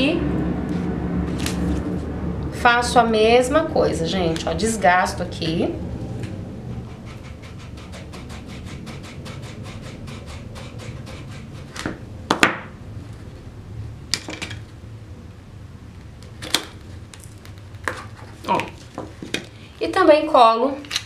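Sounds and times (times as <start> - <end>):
tool scraping cardboard: 6.7 - 12.0.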